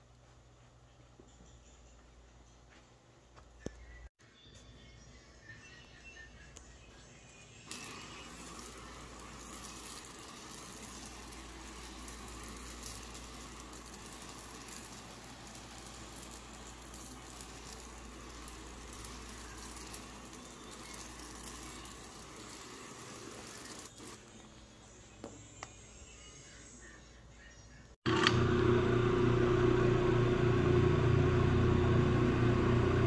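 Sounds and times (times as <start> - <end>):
sprayer wand hissing: 7.7 - 24.3.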